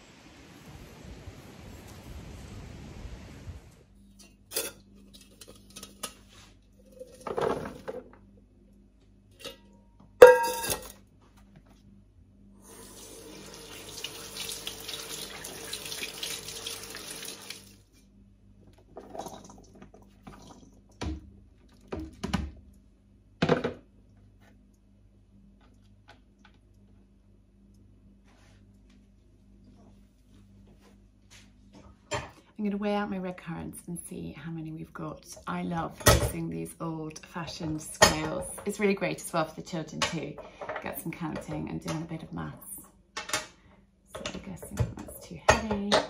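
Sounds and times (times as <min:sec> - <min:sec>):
colander and bowl clattering: 0:06.9 - 0:08.1, 0:09.4 - 0:11.0.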